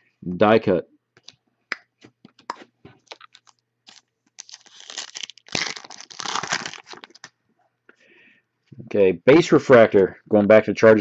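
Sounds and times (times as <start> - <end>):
plastic wrapping crinkling and tearing: 3.0 - 7.3.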